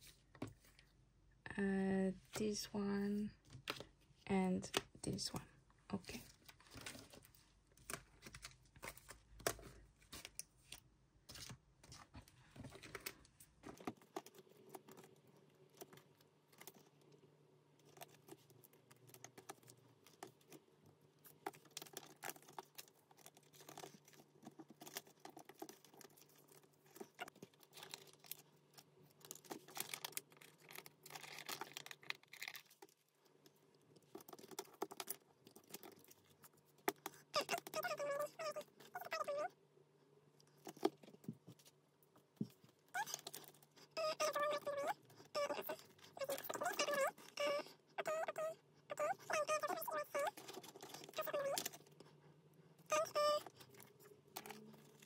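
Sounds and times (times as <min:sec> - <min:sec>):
plastic sleeves crinkling and clicking: 0:04.6 - 0:17.2, 0:17.8 - 0:39.3, 0:49.1 - 0:52.2.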